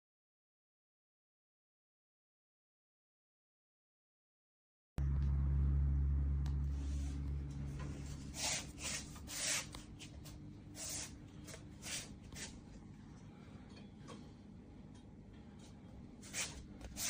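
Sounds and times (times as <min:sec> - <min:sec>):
low hum: 0:05.0 - 0:11.8.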